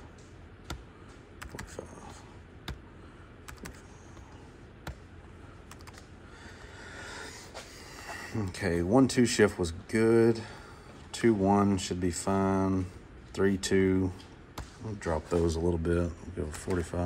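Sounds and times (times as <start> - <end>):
computer keyboard keys tapping: 0.2 - 2.0, 2.6 - 2.9, 3.5 - 5.1, 5.7 - 6.1.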